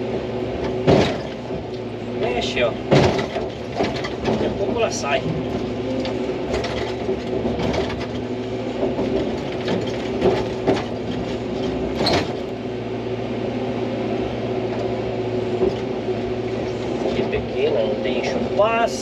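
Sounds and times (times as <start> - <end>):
excavator diesel engine running: 0.0 - 19.0
knocks and clanks: 0.6 - 12.6, 15.5 - 15.9.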